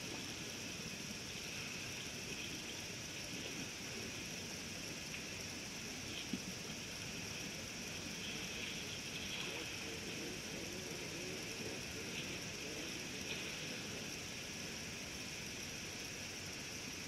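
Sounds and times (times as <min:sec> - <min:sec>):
constant high hiss: 0:00.0 - 0:17.0.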